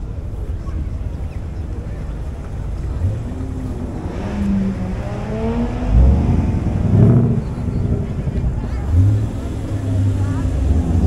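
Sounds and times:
sports car engine revving: 0:02.4 - 0:11.0.

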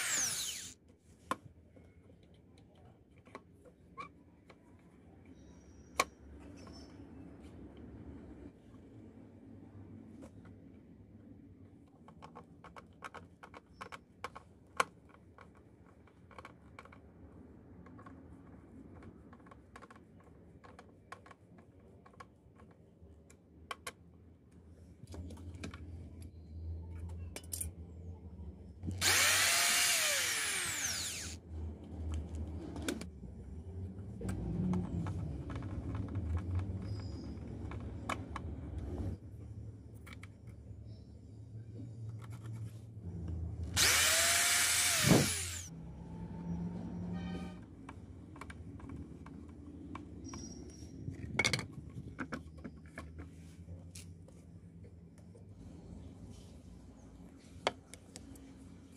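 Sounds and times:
small electric motor whining: 0:00.0 - 0:00.8, 0:29.0 - 0:31.4, 0:43.8 - 0:45.7.

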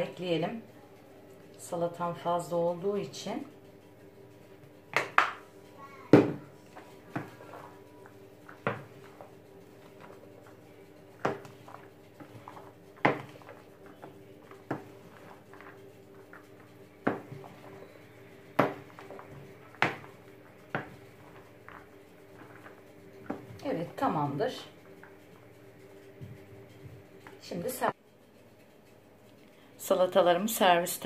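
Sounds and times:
steady low hum: 0:00.0 - 0:30.8
wooden spoon knocking on bowl: 0:08.5 - 0:09.3, 0:11.2 - 0:23.6.

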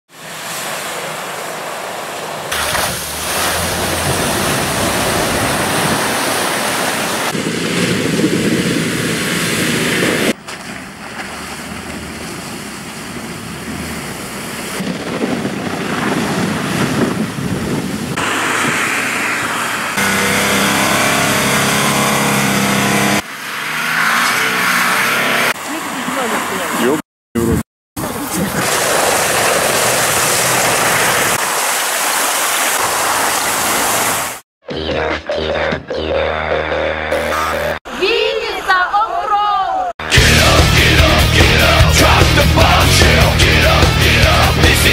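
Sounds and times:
water splashing: 0:00.1 - 0:21.2, 0:28.0 - 0:34.4
off-road vehicle engines revving: 0:00.3 - 0:31.4, 0:40.0 - 0:44.9
wind on microphone: 0:03.6 - 0:10.4, 0:13.4 - 0:20.0.

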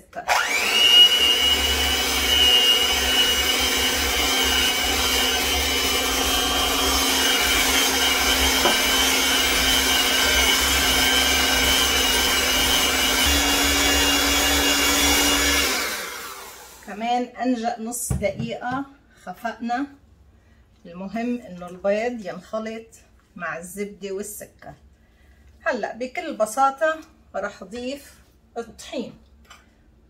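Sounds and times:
electric hand mixer whining: 0:00.2 - 0:16.9.

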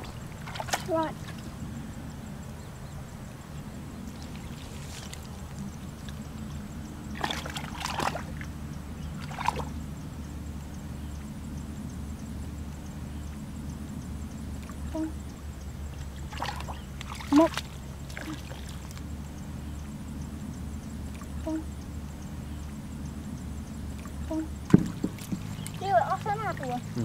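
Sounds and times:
hands splashing in muddy water: 0:00.0 - 0:01.4, 0:04.2 - 0:05.6, 0:07.1 - 0:08.4, 0:09.2 - 0:09.7, 0:16.3 - 0:19.0
steady low rumble: 0:00.0 - 0:27.0.

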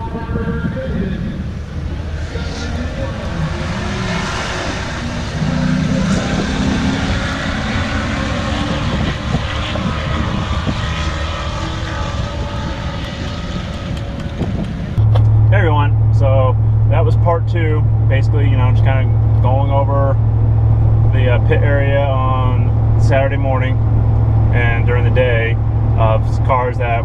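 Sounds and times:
background voices: 0:00.0 - 0:07.8
vehicle engines running: 0:00.0 - 0:27.0.

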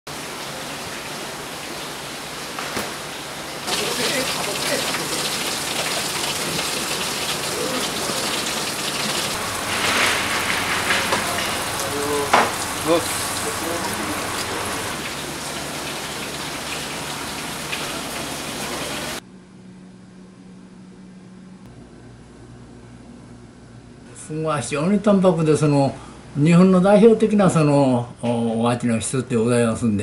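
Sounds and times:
running water: 0:00.1 - 0:19.2.

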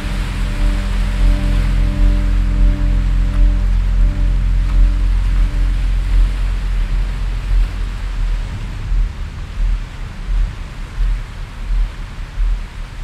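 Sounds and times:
soft music: 0:00.0 - 0:09.0
ocean surf rushing: 0:00.0 - 0:11.0.

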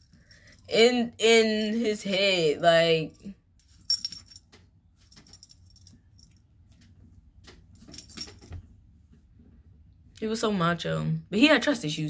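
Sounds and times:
metal pendants clinking and jingling: 0:03.0 - 0:06.4, 0:07.8 - 0:08.6.

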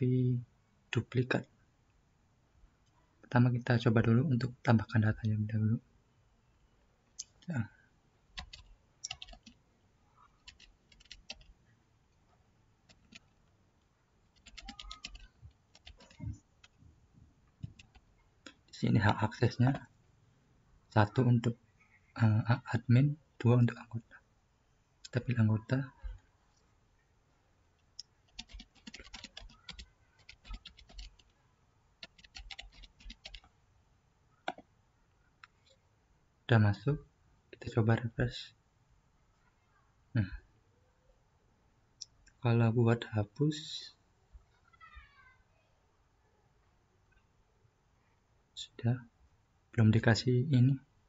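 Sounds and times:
computer keyboard keystrokes: 0:08.4 - 0:09.6, 0:10.5 - 0:11.5, 0:14.4 - 0:16.8, 0:17.6 - 0:18.0, 0:28.3 - 0:31.2, 0:32.0 - 0:33.5.

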